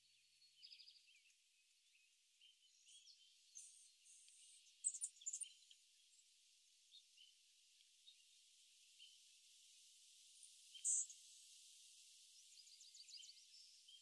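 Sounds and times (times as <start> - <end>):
bird chirps and twitters: 2.4 - 5.7
light hiss: 2.6 - 14.0.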